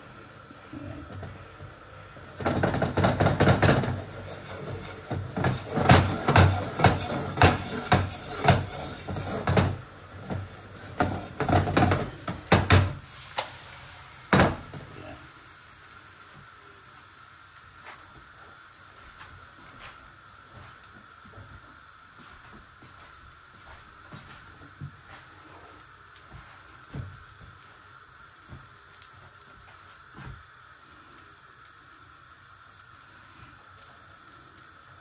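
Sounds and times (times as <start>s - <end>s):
omelette sizzling in oil: 0.0s - 35.0s
frying pan rattling on hob: 2.4s - 13.0s, 14.3s - 14.7s.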